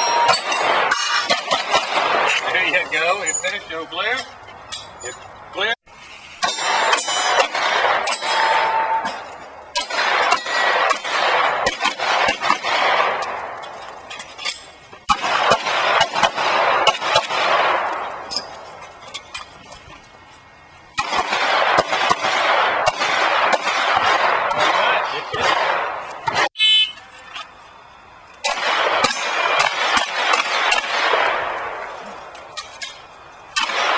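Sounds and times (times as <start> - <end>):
pistol shots with ringing echo: 0.0 - 3.8, 6.4 - 13.9, 15.0 - 18.6, 20.9 - 26.8, 28.4 - 33.9.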